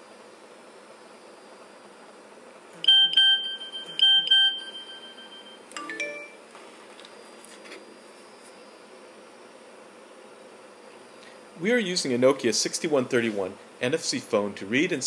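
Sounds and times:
sharp phone beeps: 2.8s - 6.4s
three-note rising chime: 4.6s - 6.4s.

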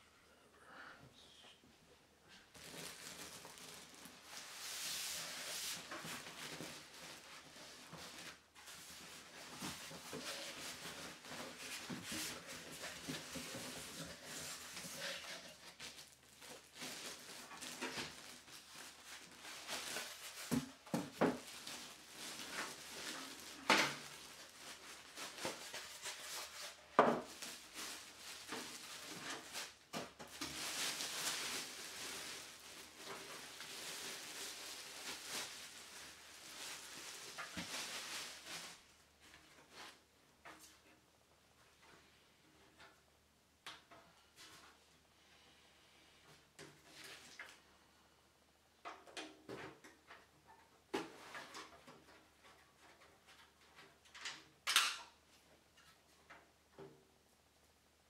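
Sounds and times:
plastic wrap crinkling: 2.3s - 40.0s.

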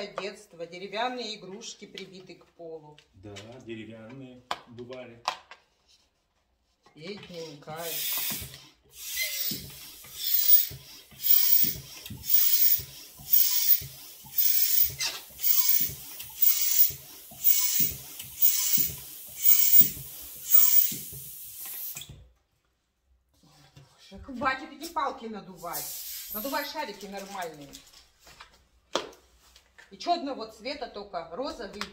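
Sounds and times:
balloon pump air hissing: 7.3s - 22.2s, 25.6s - 26.9s.

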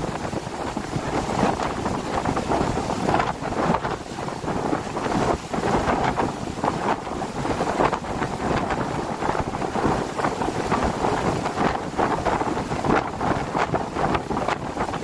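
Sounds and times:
wind blowing across microphone: 0.0s - 15.0s.

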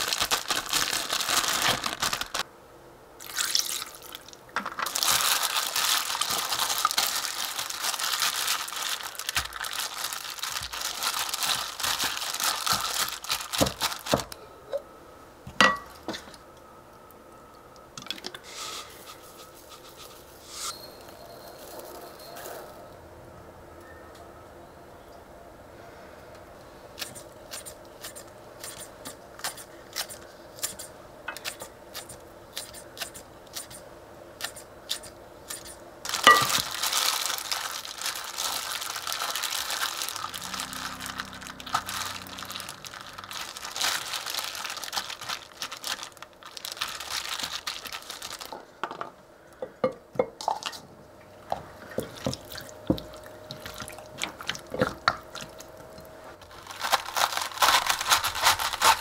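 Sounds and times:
plastic glove crinkling: 0.0s - 2.5s, 3.2s - 14.4s, 35.6s - 48.8s, 52.0s - 59.0s
wet squelching of mixing: 51.4s - 55.8s.

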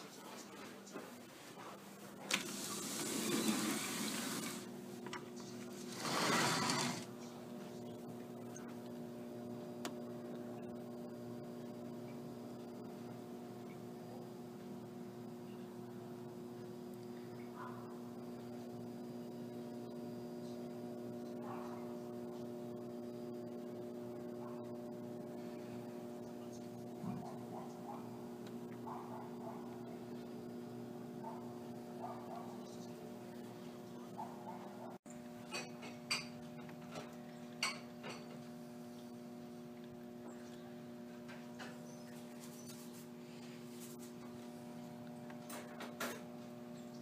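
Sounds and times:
steady multi-pitch hum: 0.0s - 47.0s
sliding glass door rolling open: 2.3s - 4.7s, 5.8s - 7.1s.

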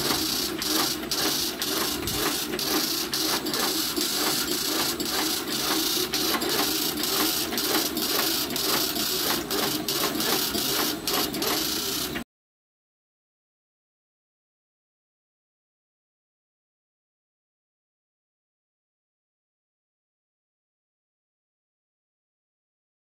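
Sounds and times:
machine clacking rhythmically: 0.0s - 12.2s.

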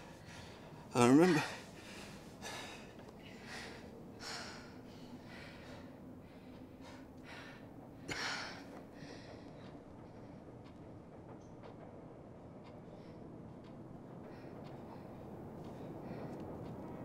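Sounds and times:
person breathing heavily: 0.0s - 10.2s.

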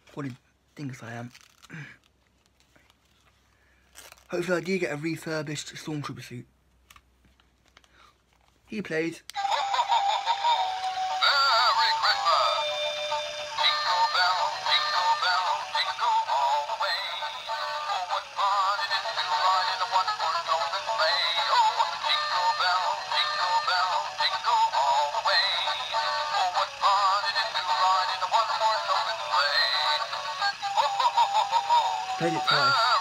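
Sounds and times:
toy speaker playing christmas song: 9.3s - 33.0s.

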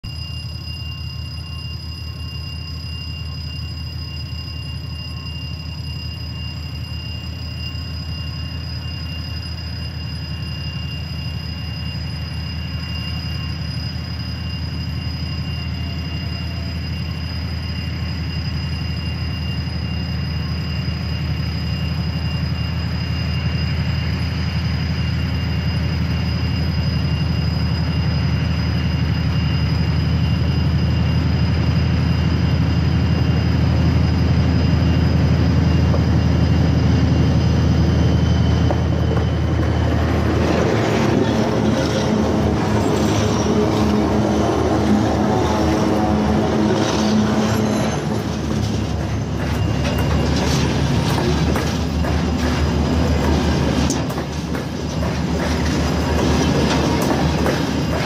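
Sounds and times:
diesel locomotive engine drone: 0.0s - 58.0s
high-pitched whine: 0.0s - 58.0s.

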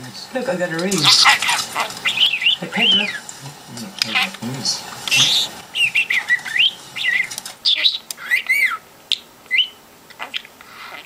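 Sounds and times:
budgerigar chirping and whistling: 0.9s - 3.3s, 4.0s - 4.5s, 5.1s - 11.0s.

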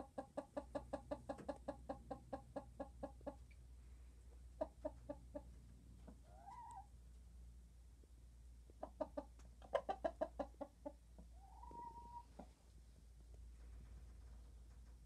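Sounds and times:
hens clucking: 0.0s - 3.7s, 4.3s - 7.0s, 8.6s - 12.7s
low steady hum: 3.2s - 9.6s.

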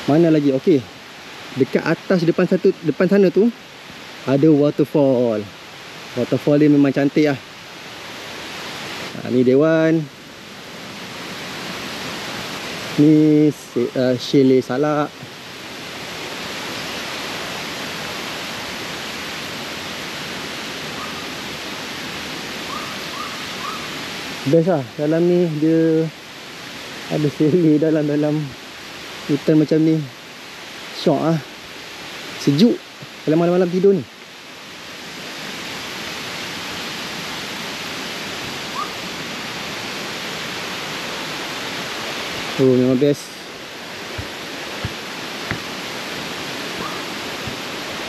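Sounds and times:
waterfall rushing: 0.0s - 48.0s.

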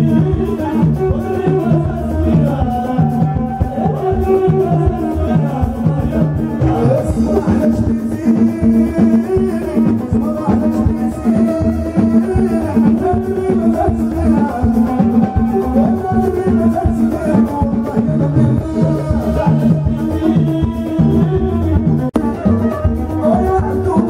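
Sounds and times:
frame drums beating: 0.0s - 24.0s
keyboard: 0.0s - 24.0s
person singing: 0.0s - 24.0s
violin: 21.0s - 24.0s.

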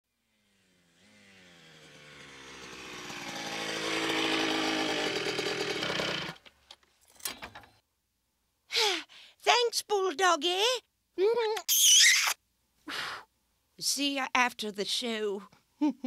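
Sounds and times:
buzzing motor-like drone: 0.2s - 6.4s.

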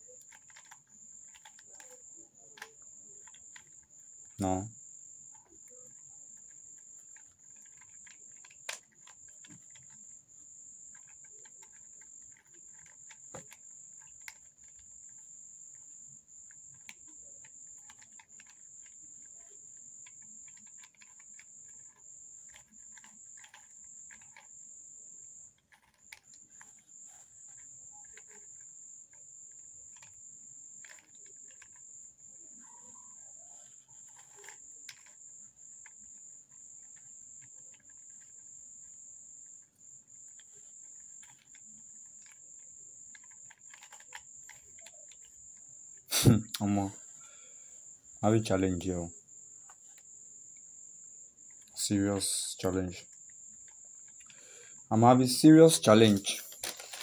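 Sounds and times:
high-pitched insect trill: 0.0s - 57.0s
puzzle cube clicking: 0.1s - 4.7s, 5.3s - 10.2s, 10.8s - 15.8s, 16.5s - 24.5s, 25.6s - 28.6s, 29.6s - 31.8s, 32.4s - 35.2s, 40.3s - 45.4s, 46.1s - 47.1s, 55.1s - 57.0s.

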